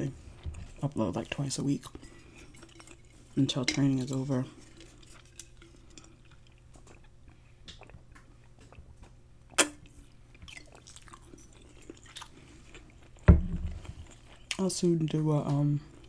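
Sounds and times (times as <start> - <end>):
mouth sounds of chewing: 4.0 - 16.0
heavy low thump: 13.2 - 14.0.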